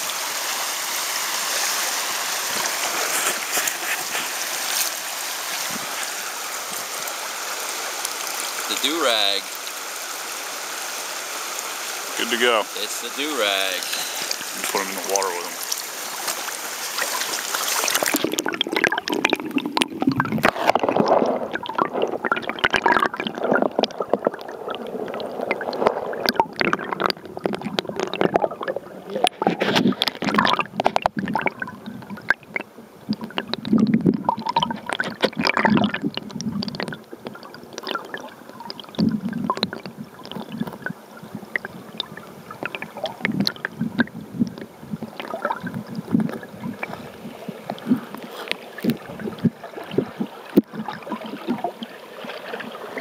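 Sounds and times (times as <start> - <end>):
muffled underwater river gurgling: 0.0 - 53.0
underwater knocks and clicks: 17.9 - 53.0.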